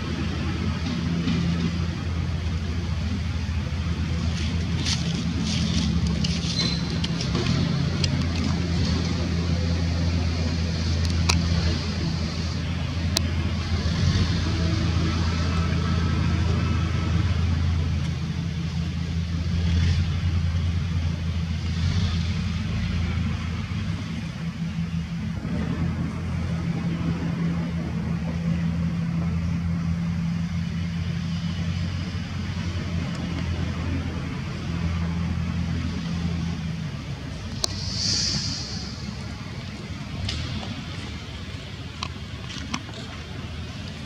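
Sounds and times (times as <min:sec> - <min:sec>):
low engine drone: 0:00.0 - 0:44.0
broad hiss: 0:37.4 - 0:41.7.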